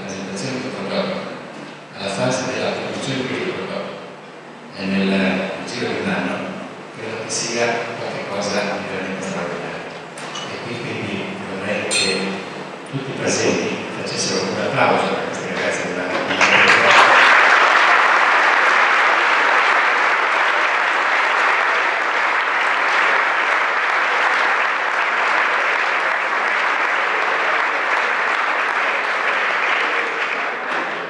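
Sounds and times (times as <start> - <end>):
audience applauding: 16.1 - 31.0.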